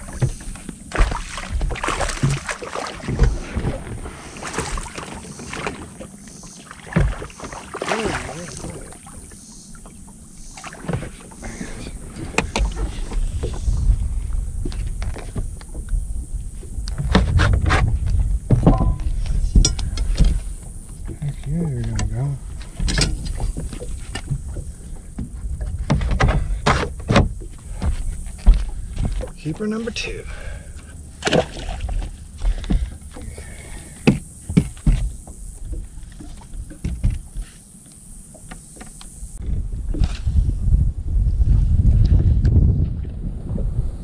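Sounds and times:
wind rumble on microphone: 0:00.0 - 0:07.4, 0:08.1 - 0:44.0
water lapping at boat hull: 0:00.0 - 0:40.6
gear knocking on boat deck: 0:16.9 - 0:20.4.

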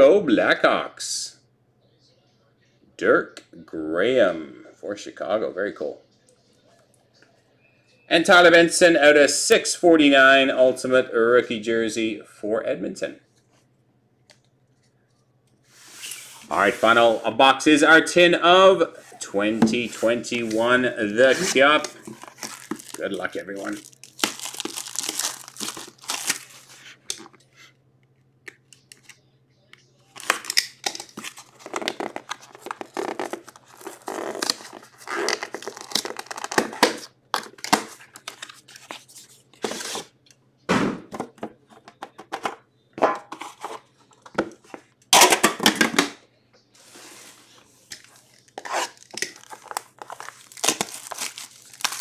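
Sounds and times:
plastic wrapping tearing and crinkling: 0:21.4 - 0:26.8, 0:30.2 - 0:39.0, 0:47.9 - 0:52.0.

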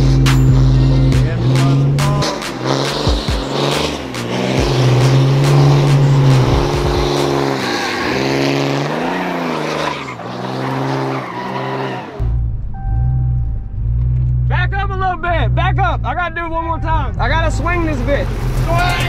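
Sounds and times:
truck engine revving: 0:00.0 - 0:19.0
tyres squealing on pavement: 0:04.6 - 0:12.2.

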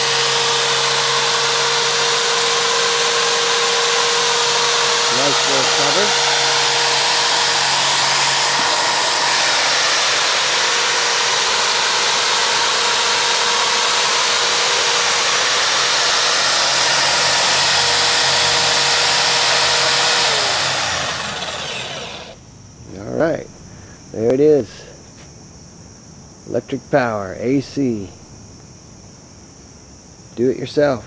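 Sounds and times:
drill motor whining: 0:00.0 - 0:22.4
motor winding down: 0:00.0 - 0:22.4.

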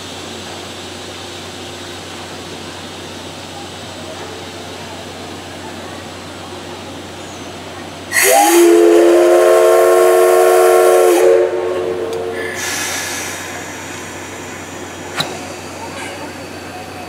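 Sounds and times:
soft steam hiss: 0:00.0 - 0:17.0
steam locomotive whistle: 0:08.1 - 0:13.3.

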